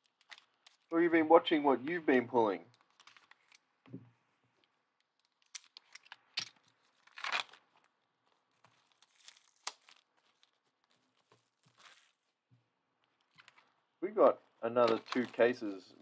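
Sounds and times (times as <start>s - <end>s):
plastic wrap tearing and crinkling: 5.3s - 12.3s, 14.8s - 15.7s.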